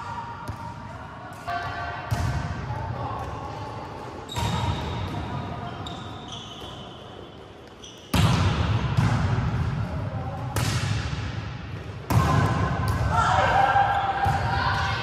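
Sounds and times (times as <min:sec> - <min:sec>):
volleyballs struck and bouncing: 0:00.0 - 0:03.6, 0:07.6 - 0:15.0.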